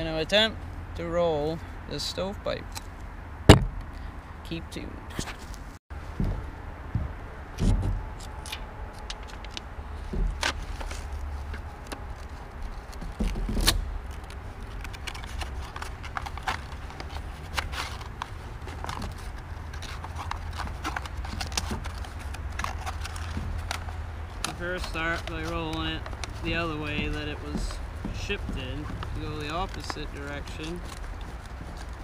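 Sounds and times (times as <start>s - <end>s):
pipe thumping against wooden boards: 3.5s - 3.9s.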